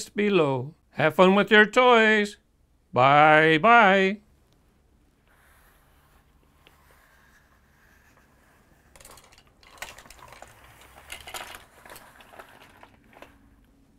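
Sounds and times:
plastic toy clicking and clattering: 0:08.8 - 0:13.4.

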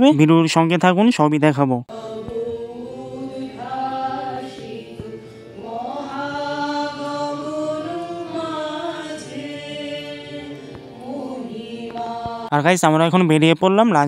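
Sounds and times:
person singing slow song: 0:01.9 - 0:12.6.

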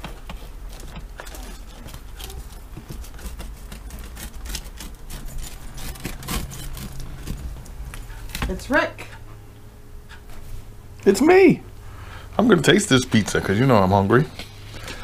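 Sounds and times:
pizza cutter grating on baking sheet: 0:01.4 - 0:08.2.

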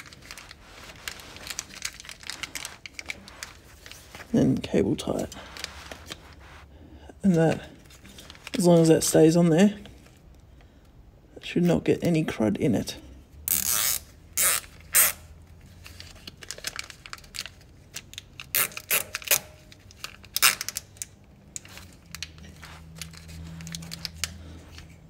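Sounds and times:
plastic bag crinkling: 0:00.0 - 0:06.6, 0:15.8 - 0:18.9
cable tie ratchet zipping: 0:13.5 - 0:15.3, 0:18.4 - 0:24.4.

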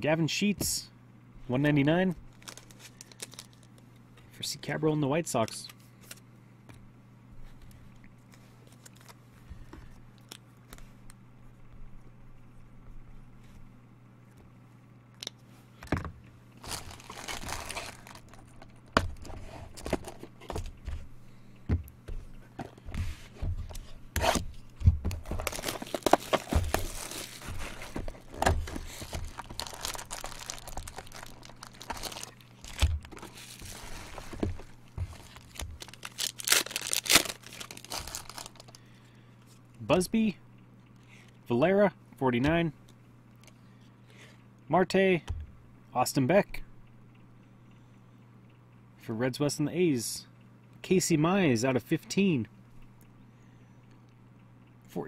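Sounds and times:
steady low hum: 0:00.0 - 0:55.0
plastic wrap tearing and crinkling: 0:02.3 - 0:03.7, 0:16.6 - 0:20.2, 0:25.1 - 0:38.8.

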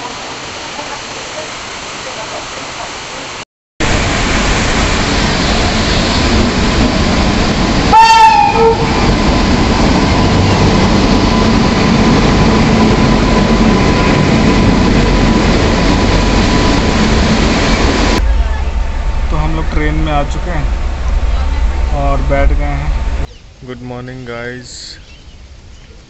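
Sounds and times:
train coaches rumbling past: 0:03.8 - 0:23.3
locomotive horn blast: 0:07.8 - 0:09.2.

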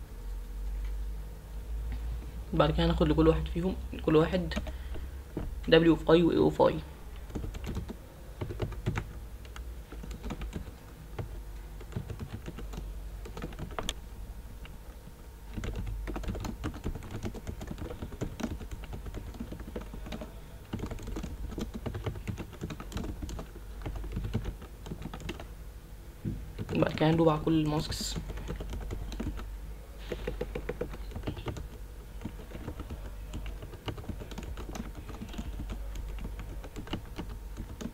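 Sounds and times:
low steady hum: 0:00.0 - 0:37.9
computer keyboard typing: 0:04.0 - 0:05.8, 0:07.1 - 0:14.0, 0:15.5 - 0:25.5, 0:26.5 - 0:37.9.

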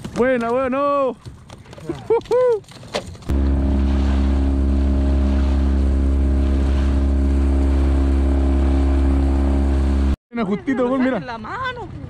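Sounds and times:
wind: 0:00.0 - 0:12.0
outboard motor droning: 0:03.3 - 0:10.2
water hissing: 0:03.3 - 0:10.2.

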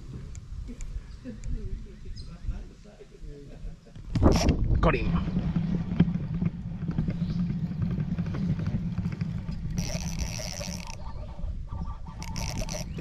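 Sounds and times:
fast reel ratcheting: 0:06.0 - 0:11.2, 0:12.2 - 0:13.0
fishing reel whirring: 0:07.0 - 0:11.5, 0:12.1 - 0:13.0
fishing rod handling noise: 0:09.5 - 0:11.1, 0:12.2 - 0:13.0.

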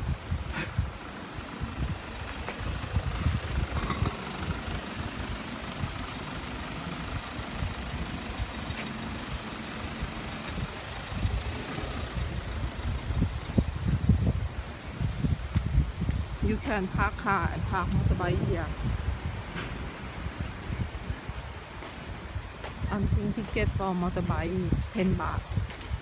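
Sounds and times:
vehicle engine running: 0:00.0 - 0:15.5
wind buffeting microphone: 0:00.0 - 0:26.0.

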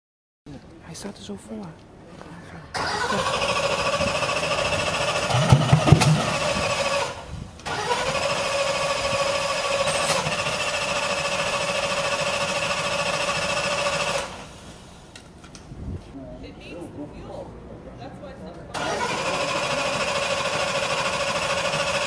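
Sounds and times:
engine pops: 0:02.8 - 0:08.6
engine starter whine: 0:02.8 - 0:15.3, 0:18.7 - 0:22.0.

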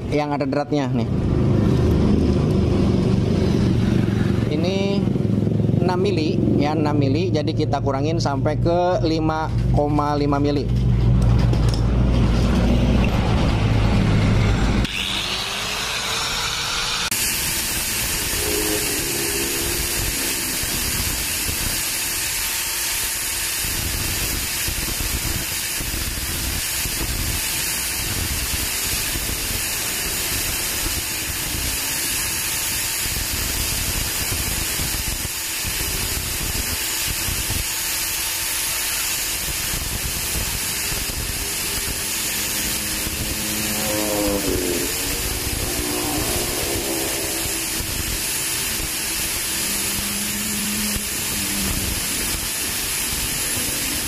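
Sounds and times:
angle grinder grinding steel: 0:11.5 - 0:54.0
loud low rumble: 0:41.3 - 0:49.1.

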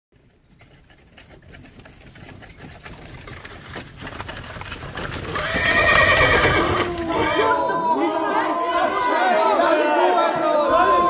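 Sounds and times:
horse hooves clopping: 0:00.1 - 0:07.6.

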